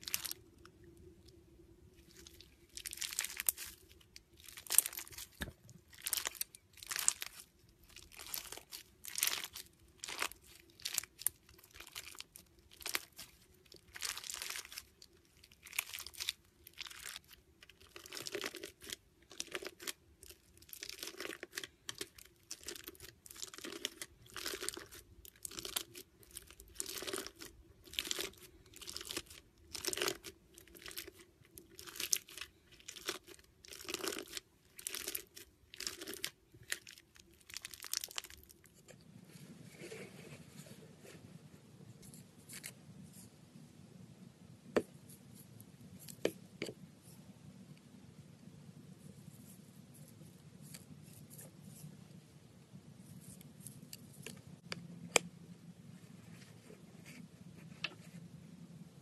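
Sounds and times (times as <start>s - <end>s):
slime crackling squishes: 0.0s - 38.9s.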